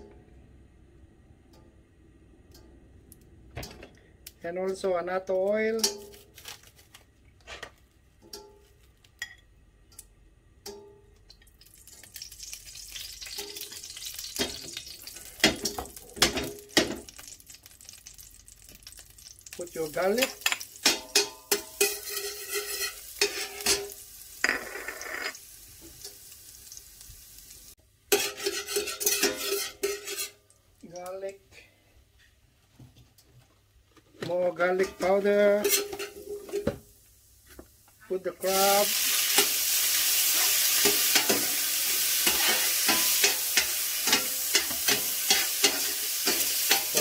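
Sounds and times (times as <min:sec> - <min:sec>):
garlic sizzling in oil: 0:11.5 - 0:30.6, 0:35.6 - 0:47.0
metal spoon scraping pan: 0:20.2 - 0:25.4, 0:28.1 - 0:30.4, 0:34.8 - 0:36.7, 0:40.3 - 0:47.0.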